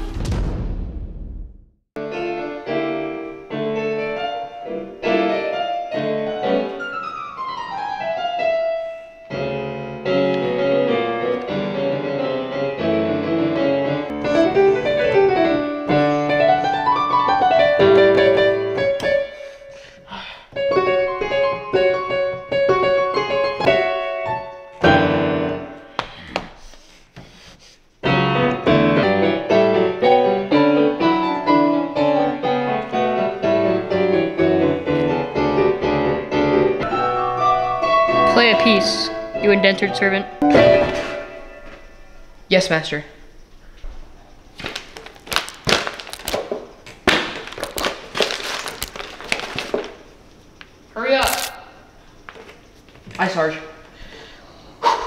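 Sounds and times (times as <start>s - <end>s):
piano music: 2.0s - 19.8s, 20.6s - 25.9s, 28.0s - 42.5s.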